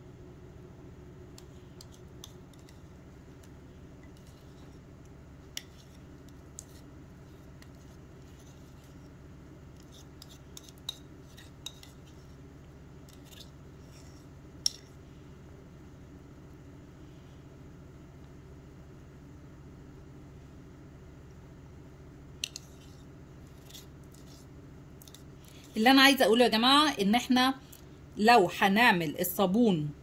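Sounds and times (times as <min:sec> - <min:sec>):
steady low hum: 0:00.0 - 0:30.0
plastic spoon scraping a bowl: 0:01.4 - 0:02.9, 0:04.0 - 0:04.9, 0:05.5 - 0:09.1, 0:09.7 - 0:12.4, 0:13.0 - 0:14.3, 0:22.4 - 0:25.8.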